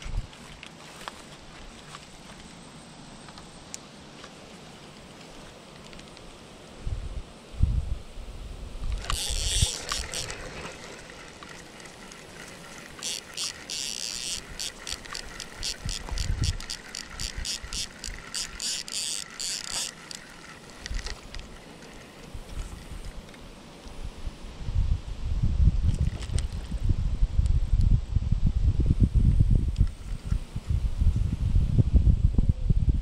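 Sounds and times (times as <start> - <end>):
fishing reel gears clicking: 8.9 - 23.2.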